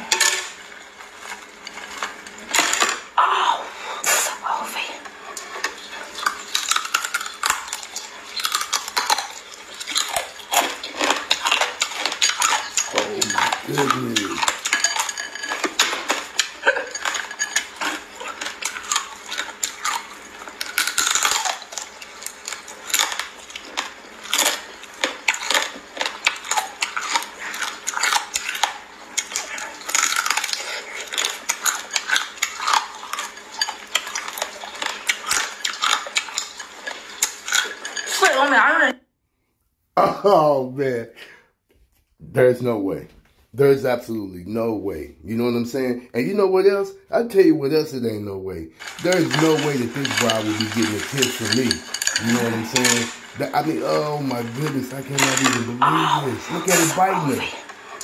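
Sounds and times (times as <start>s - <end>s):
crab shells crunching: 5.4s - 38.2s, 48.8s - 58.0s
crabs clicking against glass bowl: 6.2s - 38.2s, 48.8s - 58.0s.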